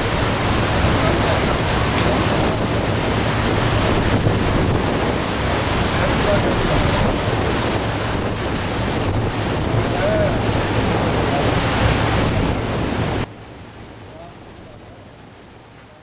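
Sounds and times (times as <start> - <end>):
wind buffeting microphone: 0.0 - 13.3
boat engine humming: 0.0 - 16.0
water rushing in propeller wake: 0.0 - 16.0.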